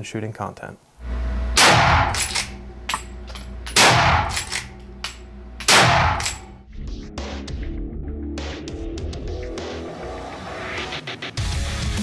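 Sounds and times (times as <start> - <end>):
rifle shots: 1.6 - 3.0, 3.7 - 6.6.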